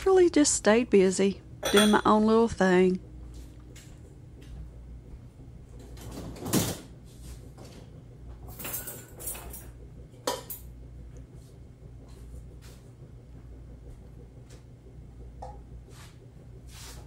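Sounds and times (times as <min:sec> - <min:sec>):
dishes clattering: 0:01.6 - 0:02.2, 0:08.5 - 0:10.7
dishes knocking and rattling: 0:01.6 - 0:02.2, 0:08.5 - 0:10.7.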